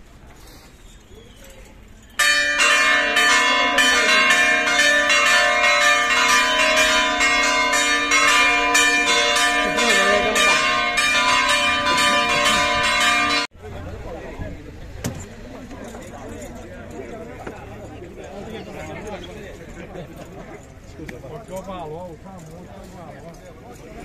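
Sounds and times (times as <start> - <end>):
church bells ringing a peal: 2.2 - 13.5.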